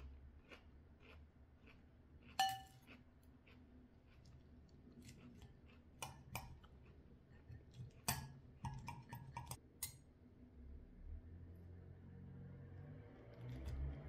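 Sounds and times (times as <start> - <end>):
cutlery clinking against glass bowl: 2.4 - 2.9, 6.0 - 6.6, 8.0 - 10.0.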